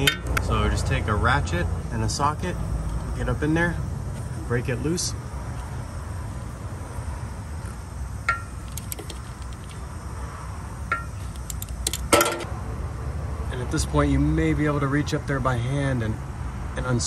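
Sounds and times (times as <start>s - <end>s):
socket ratchet clicking: 8.3s - 9.8s, 10.9s - 12.5s.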